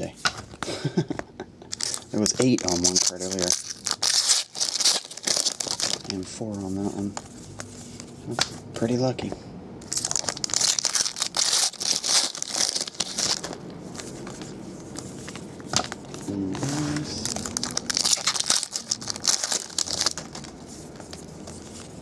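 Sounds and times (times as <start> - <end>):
foil wrappers crinkling and tearing: 1.7 - 7.0, 9.8 - 14.2, 15.0 - 22.0.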